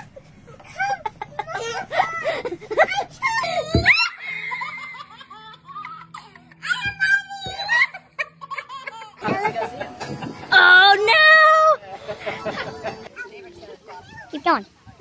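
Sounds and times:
child giggling and squealing: 0:00.7 - 0:09.2
background music: 0:01.4 - 0:13.4
people laughing: 0:07.7 - 0:10.7, 0:11.8 - 0:13.1.

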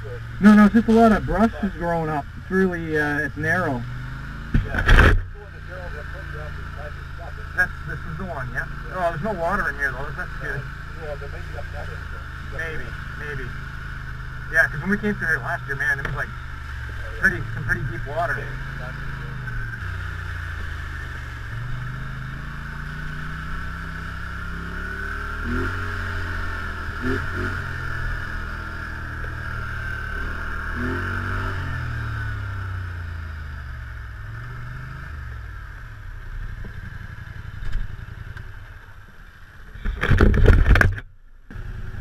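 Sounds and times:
atv engine revving: 0:00.0 - 0:42.0
steady whine: 0:00.0 - 0:42.0.

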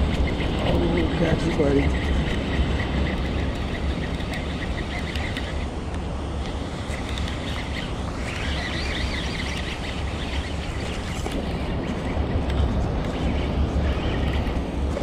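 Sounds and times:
high chirping: 0:00.0 - 0:05.7, 0:07.3 - 0:12.3
low wind rumble on microphone: 0:00.0 - 0:15.0.

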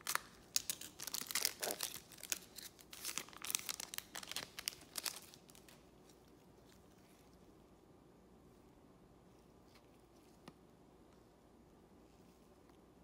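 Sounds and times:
wrapper tearing and crinkling: 0:00.0 - 0:05.8.

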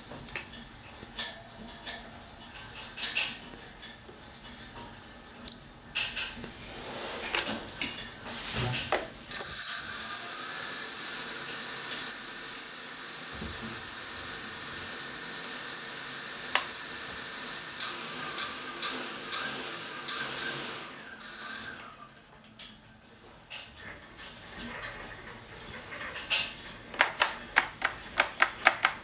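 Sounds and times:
drone motors whining: 0:09.3 - 0:21.8.

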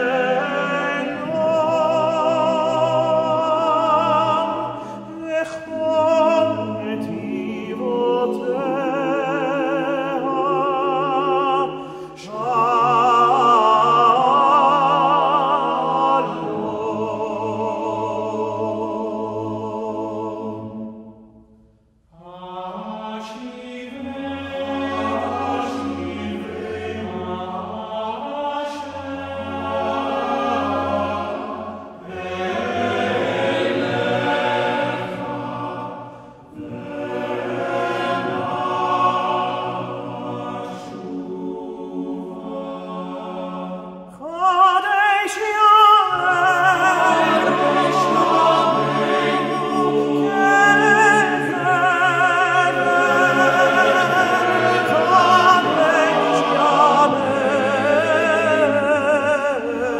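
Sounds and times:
men's choir singing a cappella: 0:00.0 - 0:21.4, 0:22.1 - 0:59.9.

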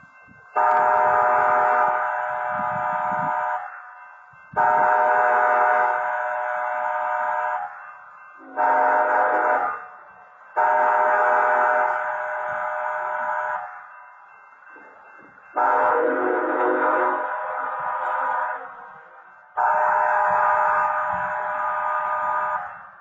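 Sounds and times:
locomotive air horn blasts: 0:00.6 - 0:03.7, 0:04.6 - 0:07.7, 0:08.4 - 0:09.8, 0:10.6 - 0:13.7, 0:15.6 - 0:18.7, 0:19.6 - 0:22.8.

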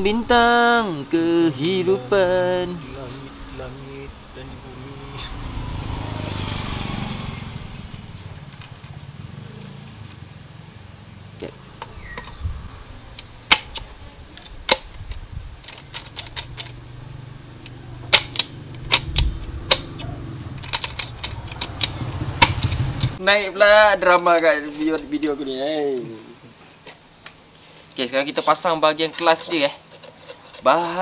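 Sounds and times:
passing vehicle rumble: 0:00.0 - 0:14.6, 0:15.3 - 0:24.0
metallic clicks of steel parts: 0:07.8 - 0:10.3, 0:11.8 - 0:16.8, 0:17.5 - 0:23.2, 0:24.0 - 0:25.6, 0:26.8 - 0:28.1, 0:28.9 - 0:30.8.

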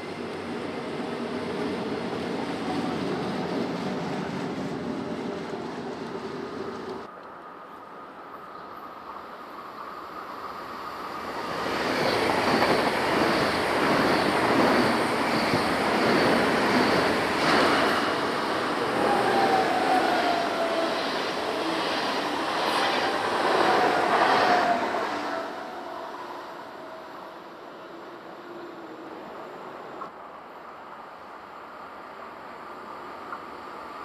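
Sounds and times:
train wheels rumbling on rail: 0:00.0 - 0:07.1, 0:10.6 - 0:27.4.

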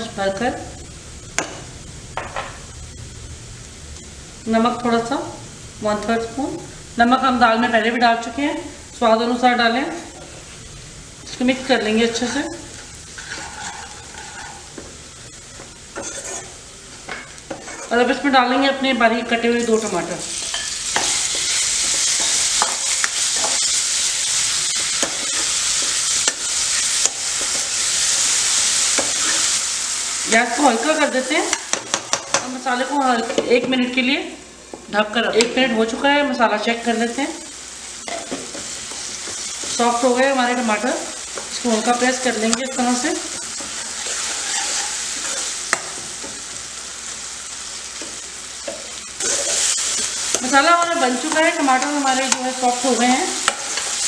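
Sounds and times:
tomatoes sizzling in oil: 0:00.0 - 0:54.0
ladle scraping pan: 0:12.8 - 0:14.8, 0:16.0 - 0:18.0, 0:43.4 - 0:45.5.

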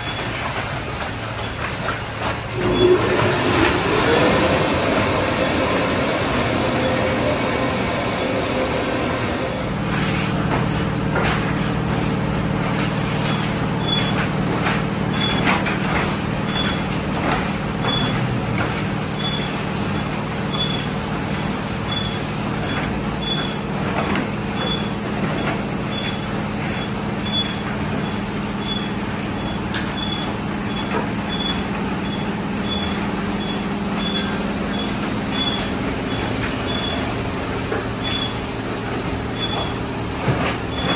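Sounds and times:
machinery hum: 0:01.3 - 0:40.9
water spray: 0:09.8 - 0:10.9.

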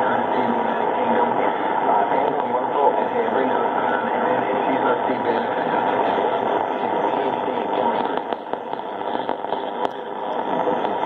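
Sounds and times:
buried radio station audio: 0:00.0 - 0:11.0
muffled radio static: 0:00.0 - 0:11.0
static clicks: 0:01.3 - 0:03.0, 0:04.3 - 0:11.0.

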